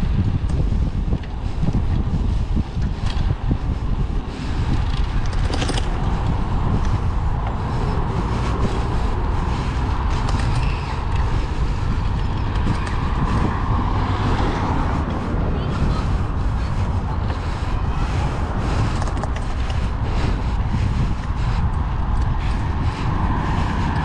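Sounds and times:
bicycle rolling rumble: 0:00.0 - 0:24.0
wind rush: 0:00.0 - 0:24.0
clicks and creaks: 0:10.1 - 0:11.3.

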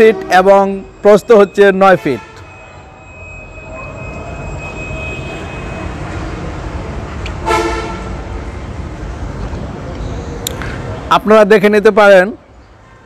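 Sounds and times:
short horn toot: 0:07.4 - 0:08.2.

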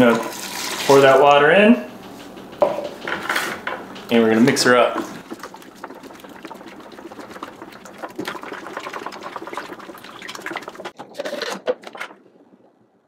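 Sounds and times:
stirrer scraping container: 0:04.1 - 0:12.1.

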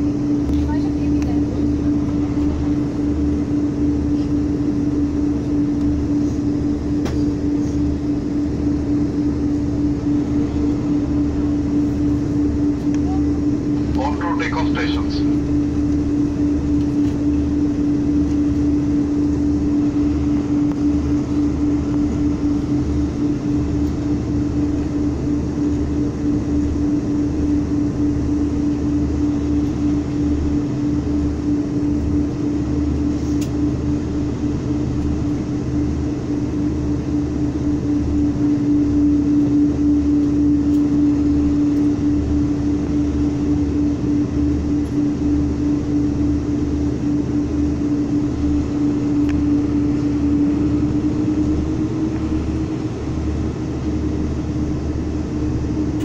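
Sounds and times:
airplane cabin drone: 0:00.0 - 0:56.0.

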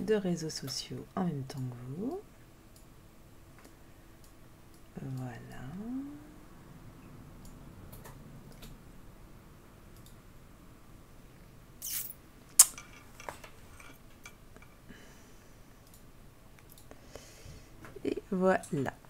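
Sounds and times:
sharp loud click: 0:11.8 - 0:12.8.

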